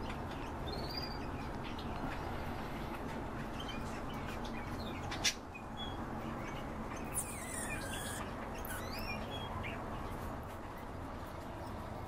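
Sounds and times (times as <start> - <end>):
birds chirping: 0.0 - 10.3
harsh bird call: 7.1 - 9.2.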